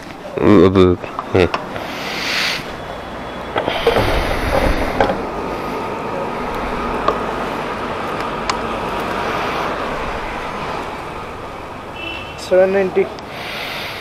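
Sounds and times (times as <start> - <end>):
steady hum: 1.7 - 12.0.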